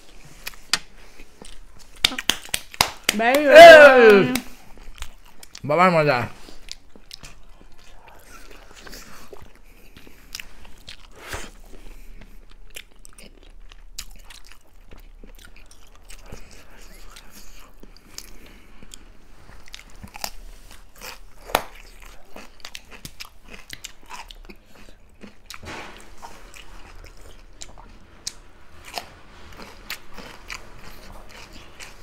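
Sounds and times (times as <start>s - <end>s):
chewing and eating noises: 0.0s - 32.0s.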